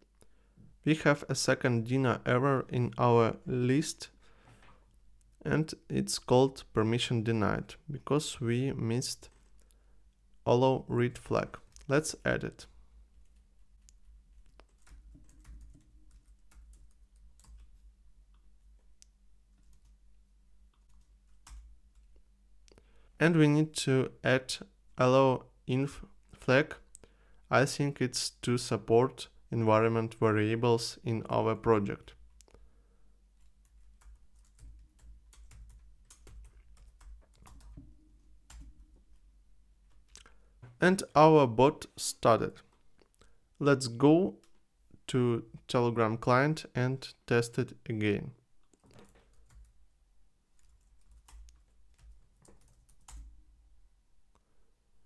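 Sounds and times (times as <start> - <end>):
typing on a keyboard: 14.4 - 17.7, 33.4 - 37.9, 48.7 - 49.8, 50.6 - 53.4.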